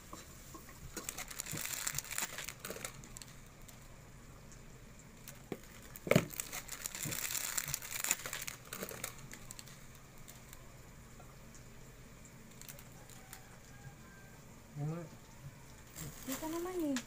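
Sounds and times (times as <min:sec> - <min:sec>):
plastic packaging crinkling: 0:00.9 - 0:03.9, 0:05.1 - 0:10.7, 0:12.4 - 0:13.9, 0:15.6 - 0:17.0.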